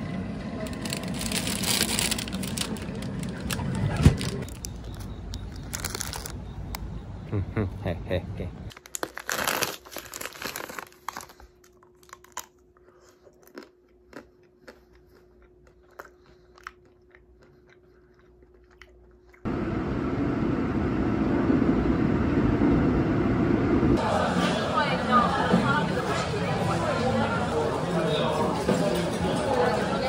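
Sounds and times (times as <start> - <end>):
subway train rumble: 0.0 - 5.0, 19.5 - 30.0
faint hum: 0.0 - 9.0, 9.8 - 30.0
plastic wrapper crinkling: 0.6 - 6.4, 8.7 - 12.6
crunchy bites: 4.4 - 6.9, 8.7 - 17.7.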